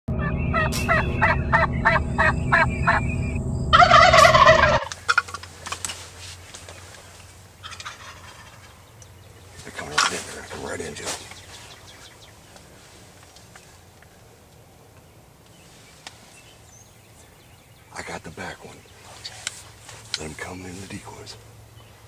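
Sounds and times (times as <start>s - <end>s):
steady low hum: 0.1s - 15.0s
turkey gobbling: 0.2s - 3.0s, 3.7s - 5.5s, 7.6s - 8.8s, 9.7s - 10.6s.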